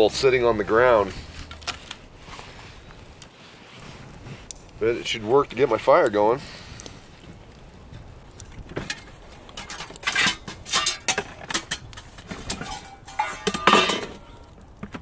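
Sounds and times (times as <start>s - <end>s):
metal cookware clattering in plastic tote: 8.8s - 14.4s.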